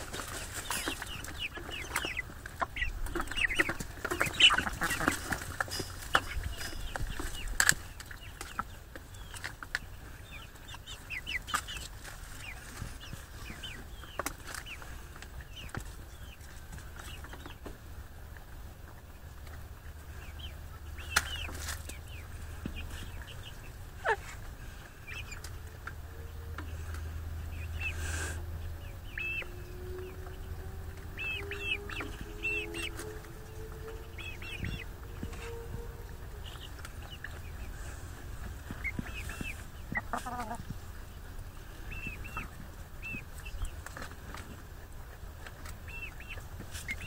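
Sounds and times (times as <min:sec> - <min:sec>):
hens clucking and chirping: 0:00.0 - 0:47.0.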